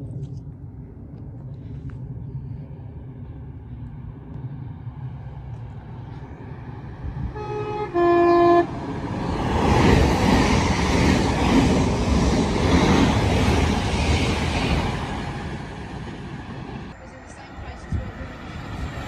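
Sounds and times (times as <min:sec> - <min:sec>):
electric train rumble: 0:00.0 - 0:19.0
two-tone train horn: 0:07.3 - 0:08.8.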